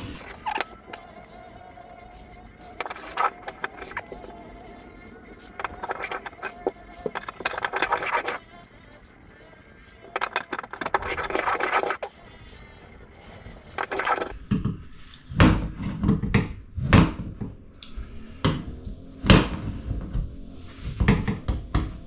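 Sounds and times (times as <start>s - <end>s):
hand plane scraping wood: 2.2s - 9.1s, 10.1s - 12.1s, 13.7s - 14.4s.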